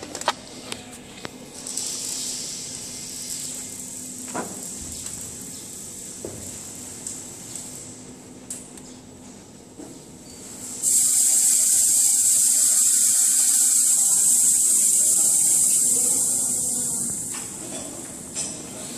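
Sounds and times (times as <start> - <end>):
machine high hiss: 1.6 - 6.2, 10.5 - 17.6.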